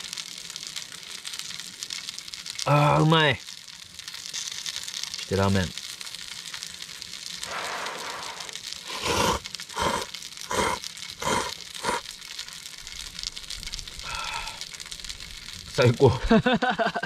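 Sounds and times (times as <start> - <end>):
person slurping noodles: 7.4 - 12.0.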